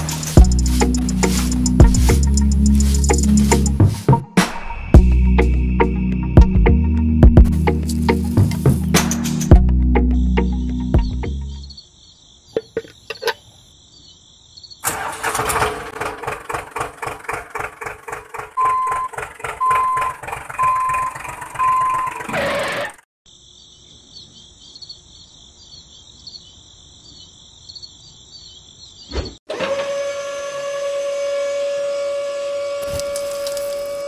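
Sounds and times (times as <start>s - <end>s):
tractor engine chugging: 0.0s - 4.0s, 14.8s - 22.4s
insect chirring: 11.3s - 14.8s
reversing alarm beeping: 18.6s - 22.4s.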